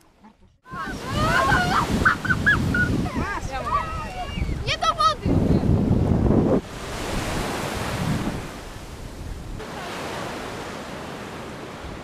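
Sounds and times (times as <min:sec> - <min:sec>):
wind buffeting microphone: 0:00.6 - 0:09.7
surf washing onto sand: 0:00.7 - 0:12.0.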